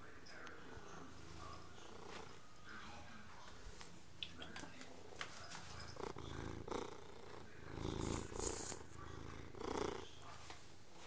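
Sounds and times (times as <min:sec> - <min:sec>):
cat purring: 0:00.4 - 0:03.1, 0:05.5 - 0:11.0.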